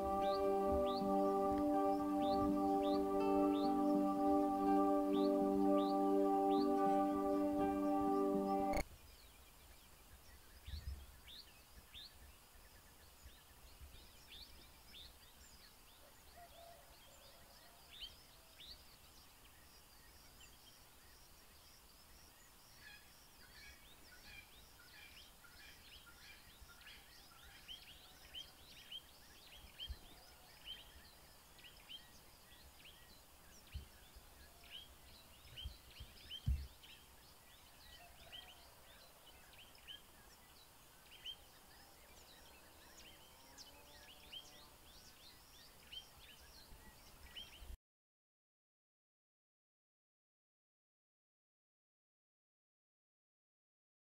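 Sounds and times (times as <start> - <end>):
birds chirping: 0.0 - 8.8
steady low hiss: 0.0 - 16.3.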